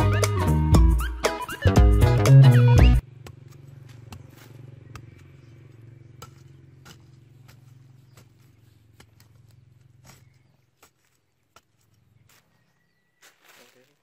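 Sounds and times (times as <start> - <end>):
low engine-like hum: 3.0 - 10.5
knife chopping into stony soil: 6.1 - 11.9.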